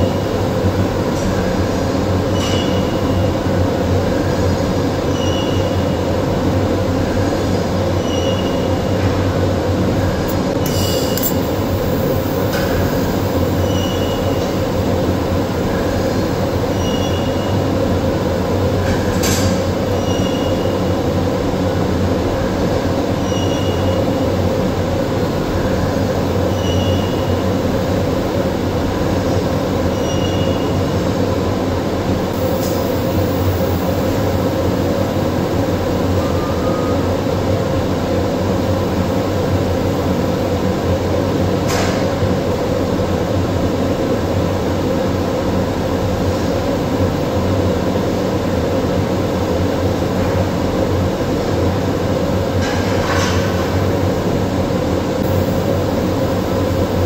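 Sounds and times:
welding arc hissing and humming: 0:10.1 - 0:16.8, 0:32.2 - 0:36.1, 0:55.2 - 0:57.0.

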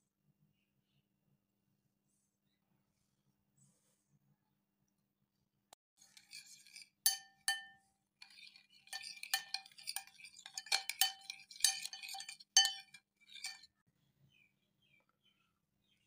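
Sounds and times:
spoon clinking on glass bowl: 0:06.0 - 0:13.7.

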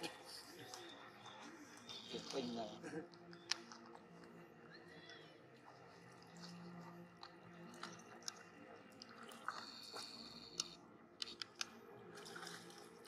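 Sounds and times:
small clicks and drips: 0:03.0 - 0:13.0.

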